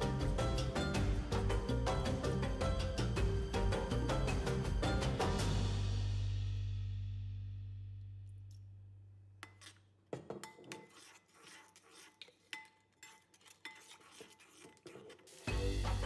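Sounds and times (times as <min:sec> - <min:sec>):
background music: 0:00.0 - 0:07.2, 0:15.4 - 0:16.0
metal utensil clinking cookware: 0:09.4 - 0:15.2.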